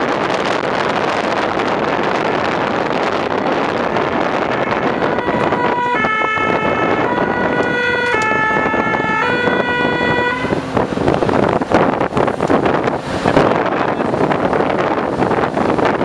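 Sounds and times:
wind rush and road noise: 0:00.0 - 0:16.0
fire engine two-tone siren: 0:03.3 - 0:10.8.

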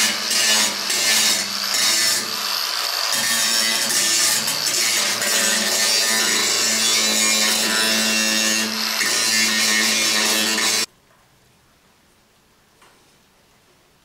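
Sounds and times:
angle grinder grinding metal: 0:00.0 - 0:10.9.

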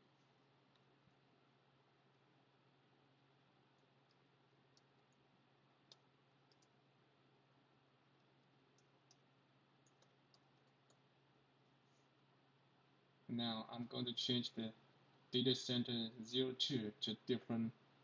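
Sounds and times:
low steady hum: 0:00.0 - 0:18.0
keyboard keys clicking: 0:05.9 - 0:06.7.

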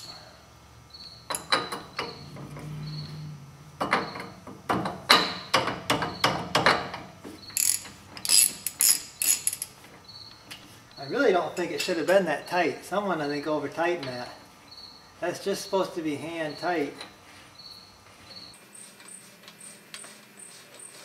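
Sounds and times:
hand ratchet clicking: 0:07.6 - 0:09.7.

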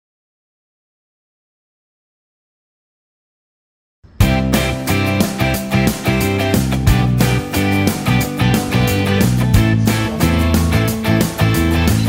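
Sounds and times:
background music with steady beat: 0:04.1 - 0:12.0.

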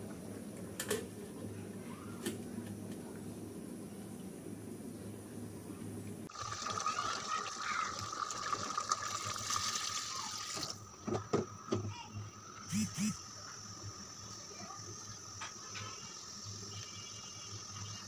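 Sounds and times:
water pouring into a pot: 0:06.3 - 0:10.8.

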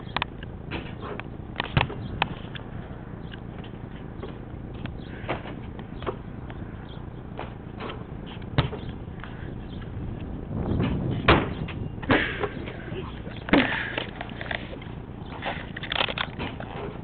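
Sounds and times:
basketball hitting backboard and rim: 0:00.7 - 0:02.5, 0:07.3 - 0:09.3, 0:10.8 - 0:12.8
basketball bouncing on concrete: 0:01.6 - 0:02.4, 0:07.3 - 0:09.4.

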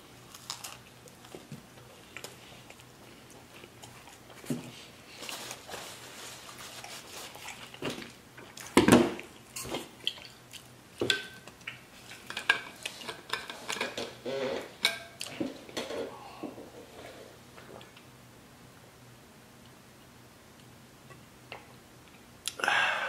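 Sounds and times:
paper napkin rustling: 0:04.8 - 0:07.9.

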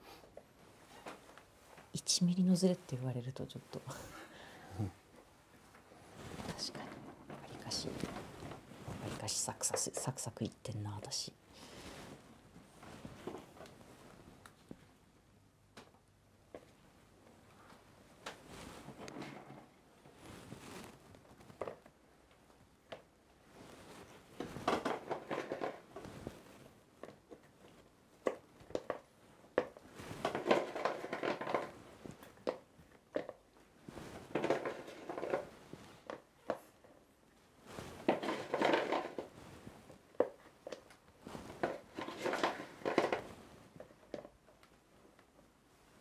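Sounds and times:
dry rustling and scraping: 0:37.6 - 0:44.3.

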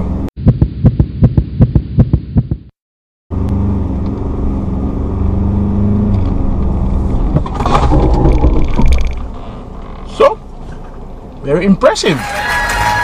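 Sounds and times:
diesel engine and tyre cabin noise: 0:00.0 - 0:00.8, 0:03.3 - 0:13.0
fast heartbeat sound effect: 0:00.4 - 0:02.7.

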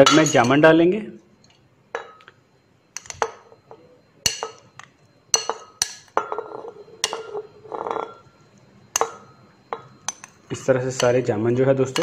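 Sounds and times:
glass bowl clinking on blender jar: 0:00.0 - 0:00.6, 0:03.0 - 0:08.3.

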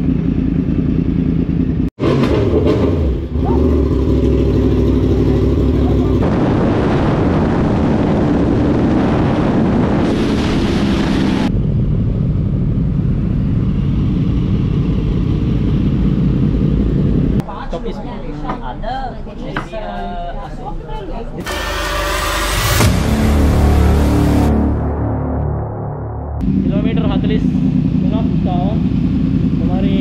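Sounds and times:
motorcycle engines running: 0:00.0 - 0:06.3, 0:07.4 - 0:17.4, 0:26.4 - 0:30.0
loud wind rushing: 0:06.2 - 0:17.4.

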